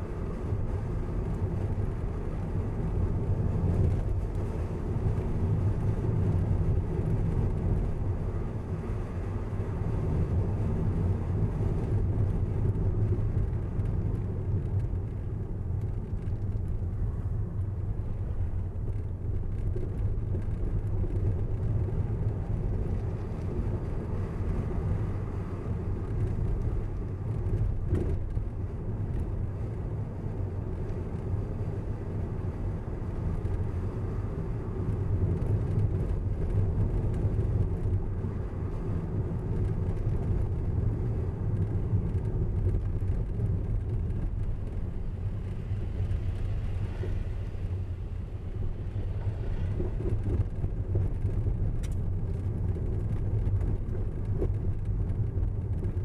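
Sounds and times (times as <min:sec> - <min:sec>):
car tyres and engine rumble: 0:00.0 - 0:56.0.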